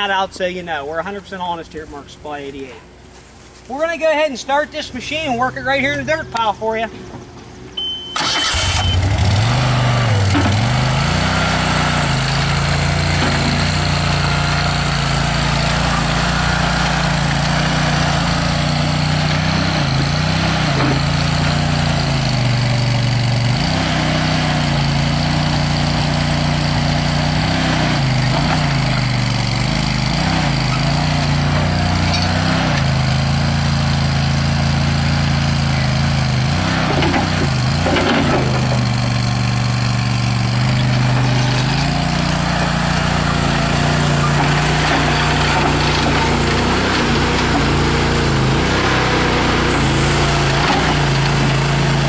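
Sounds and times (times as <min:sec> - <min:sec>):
engine starting and running: 0:06.3 - 0:52.0
high beep: 0:07.8 - 0:08.2, 0:08.8 - 0:09.1.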